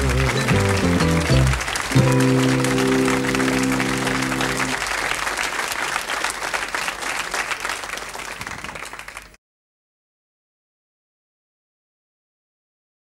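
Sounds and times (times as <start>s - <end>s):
sitcom theme music: 0.0s - 4.8s
studio audience applause: 0.0s - 9.4s.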